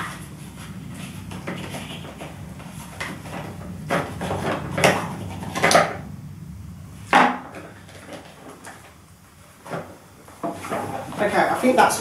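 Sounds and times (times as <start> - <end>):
plastic scraping: 0.0 - 6.0, 9.6 - 11.5.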